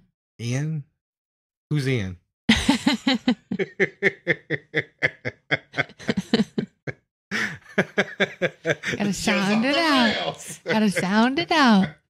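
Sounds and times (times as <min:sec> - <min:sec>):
person laughing: 0:02.5 - 0:12.0.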